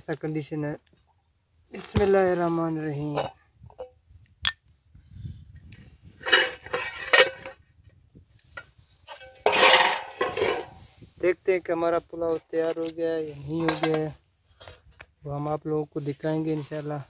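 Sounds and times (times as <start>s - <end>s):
lid clatter: 6.2s - 7.6s, 9.1s - 10.8s, 13.6s - 14.8s
metal pot lid clinking and scraping: 6.2s - 7.6s, 9.1s - 10.8s.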